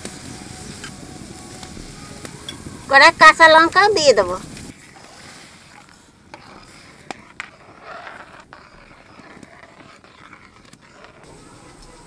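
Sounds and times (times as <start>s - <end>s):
low bubbling hiss: 0.0s - 7.2s
ladle stirring boiling food: 0.0s - 12.0s.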